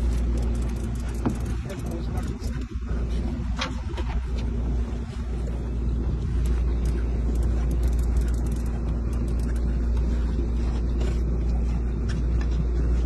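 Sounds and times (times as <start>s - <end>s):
boat engine droning: 0.0s - 13.0s
faint clicks: 6.4s - 10.1s.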